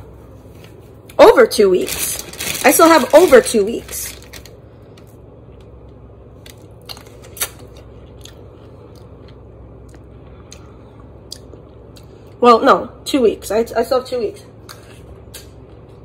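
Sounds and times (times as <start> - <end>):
person chewing food: 6.5 - 12.4.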